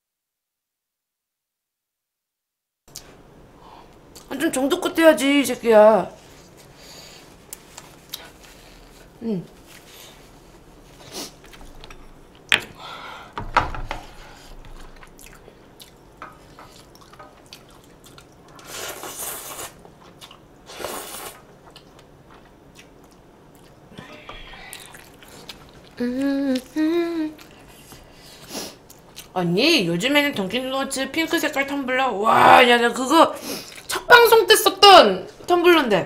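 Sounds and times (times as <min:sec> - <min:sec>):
chewing: 0:14.6 - 0:20.4, 0:21.0 - 0:23.8, 0:24.4 - 0:28.0
person humming: 0:26.0 - 0:27.4.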